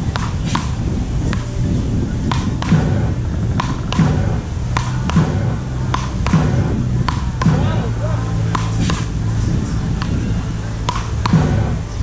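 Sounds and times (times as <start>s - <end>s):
ball struck with paddles: 0.0s - 1.6s, 2.2s - 12.0s
low background hum: 0.0s - 12.0s.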